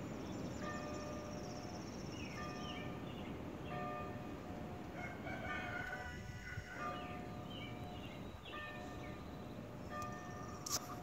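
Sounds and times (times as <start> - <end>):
birds chirping: 0.0 - 4.3, 6.6 - 11.0
distant church bell ringing: 0.0 - 11.0.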